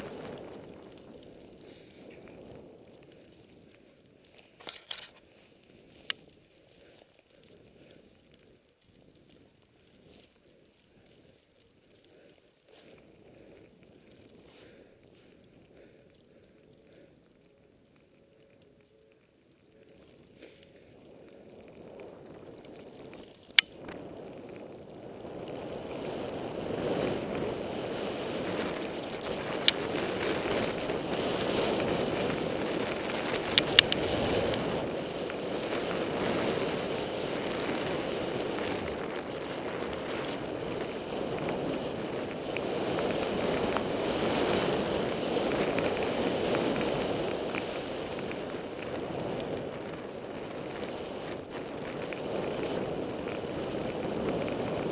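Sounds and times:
wind rushing over microphone: 0.0 - 4.2, 20.9 - 54.9
skis running through powder snow: 0.0 - 19.1, 19.7 - 54.9
sharp clicks: 23.4 - 23.8.

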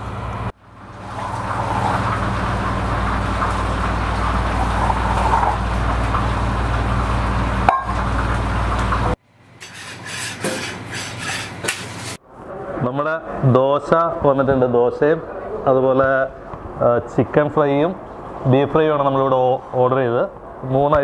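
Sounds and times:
gas burner rushing: 0.0 - 12.2
kitchen equipment hum: 0.0 - 12.7.

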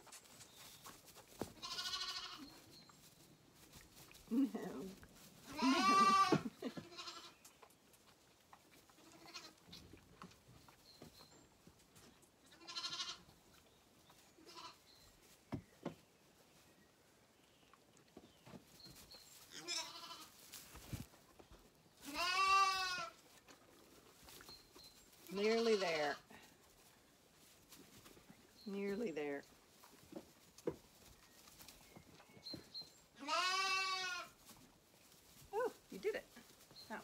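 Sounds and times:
lambs bleating: 1.6 - 2.5, 5.5 - 7.4, 9.0 - 9.6, 12.6 - 13.2, 14.4 - 14.8, 19.5 - 20.4, 22.1 - 23.2, 25.4 - 26.2, 33.2 - 34.4.

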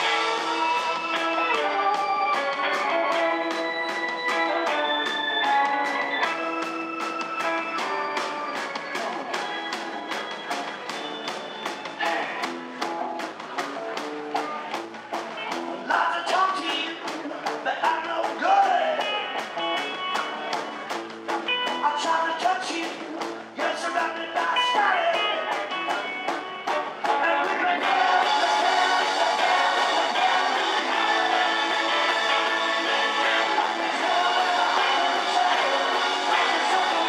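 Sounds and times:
electric bass: 0.0 - 8.4, 25.0 - 37.0
electric guitar: 0.0 - 37.0
fast drumbeat: 0.0 - 37.0
man singing lead: 12.0 - 12.5, 15.8 - 19.4, 21.7 - 26.2, 27.0 - 37.0.

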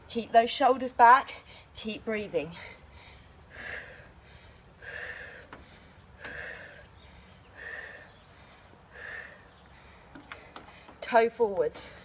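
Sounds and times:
woman breathing hard: 2.5 - 11.0.

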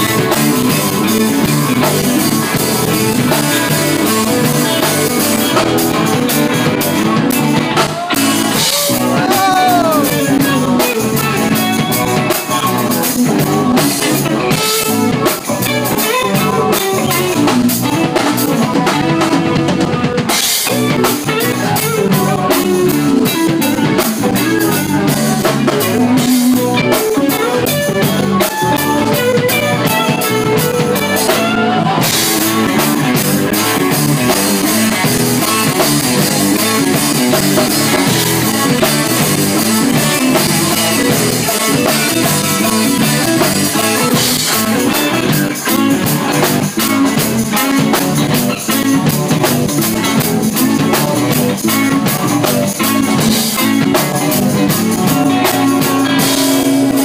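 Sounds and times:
drum kit with cymbals: 0.0 - 57.0
electric guitars: 0.0 - 57.0.

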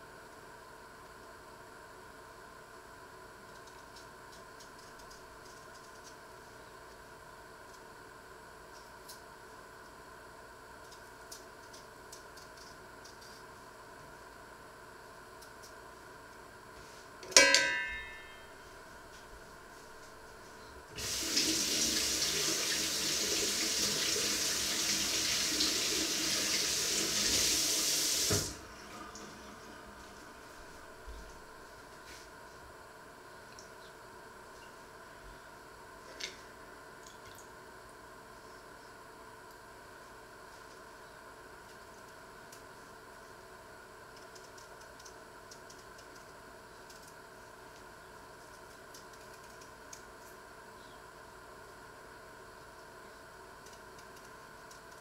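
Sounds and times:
faint steady hum: 0.0 - 55.0
tap water running into sink: 21.0 - 28.6.

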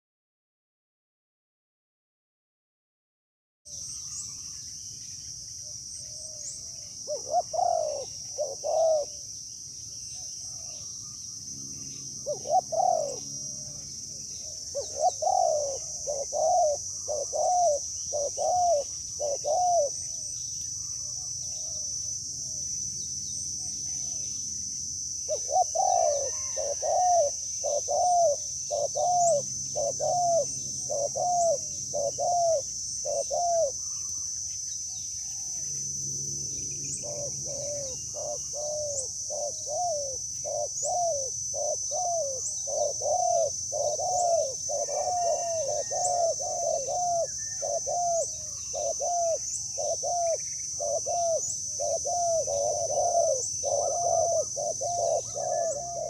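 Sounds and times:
doves cooing: 6.0 - 9.3, 12.1 - 22.7, 25.3 - 34.1, 36.9 - 56.0
high insect buzz: 10.8 - 56.0.

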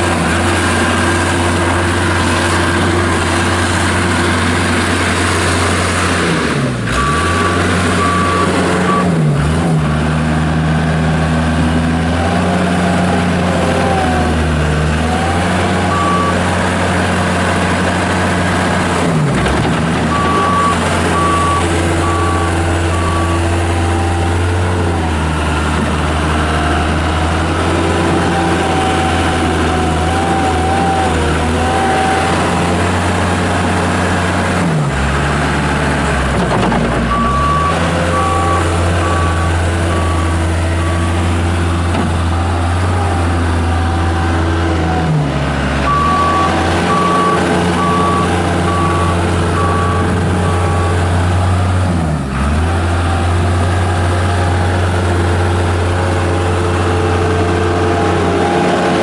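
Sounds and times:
diesel loader engine running hard: 0.0 - 59.0
backup alarm beeping: 15.9 - 16.4, 20.1 - 23.9, 45.9 - 51.0.

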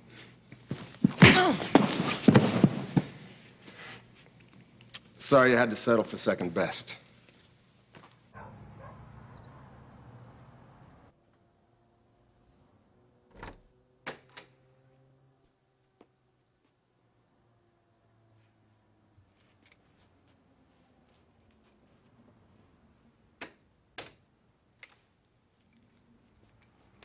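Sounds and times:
door latch clicks: 13.3 - 14.5.

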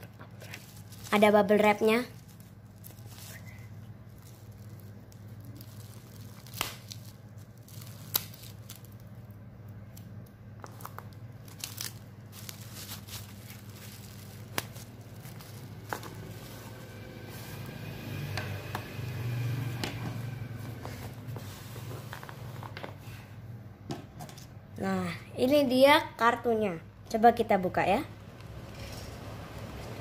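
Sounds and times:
bubble wrap crinkling: 0.0 - 23.0.

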